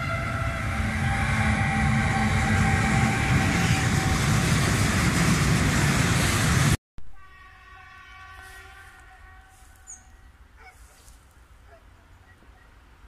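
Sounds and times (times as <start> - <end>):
distant train horn: 0.0 - 4.6, 7.1 - 10.7
freight train wheels rumbling: 0.0 - 6.8.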